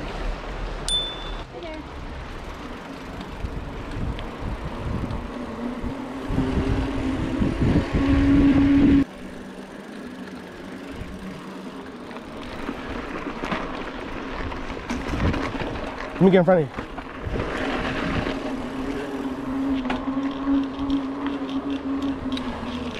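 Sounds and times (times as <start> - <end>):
bike rumbling over rough trail: 2.0 - 22.9
wind on microphone: 3.4 - 9.1
rising hum: 4.4 - 12.8.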